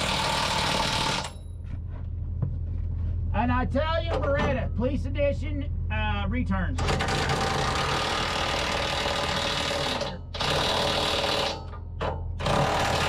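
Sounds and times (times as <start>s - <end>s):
power tool rattling: 0.0s - 1.4s, 6.8s - 13.0s.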